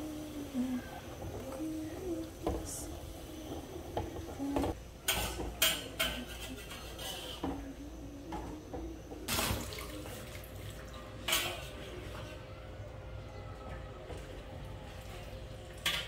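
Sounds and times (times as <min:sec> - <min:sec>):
metal spatula scraping wok: 0:06.0 - 0:07.5.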